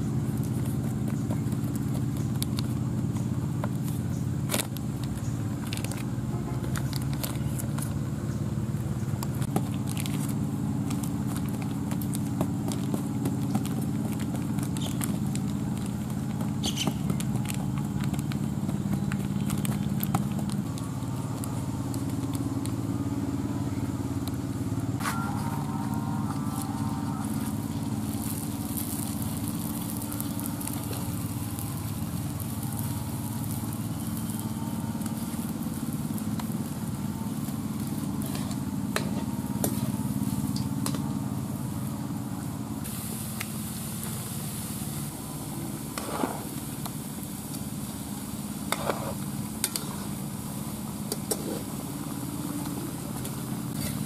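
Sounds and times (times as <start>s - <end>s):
low mechanical hum: 0.0s - 54.0s
food deep-frying in hot oil: 27.5s - 41.0s, 42.8s - 54.0s.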